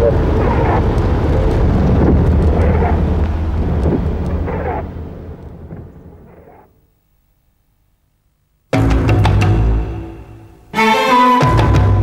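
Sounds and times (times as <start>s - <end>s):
faint distant calls: 0.0s - 7.3s
low rumbling outdoor ambience: 0.0s - 12.0s.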